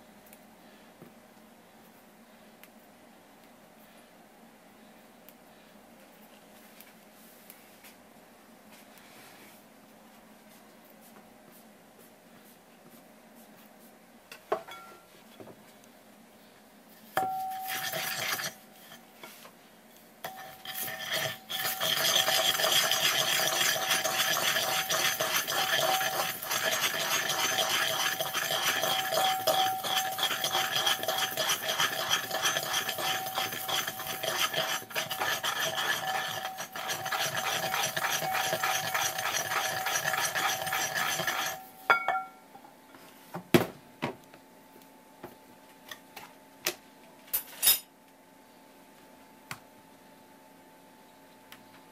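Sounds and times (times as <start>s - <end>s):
pestle grinding in ceramic mortar: 17.2s - 19.0s, 20.2s - 42.2s.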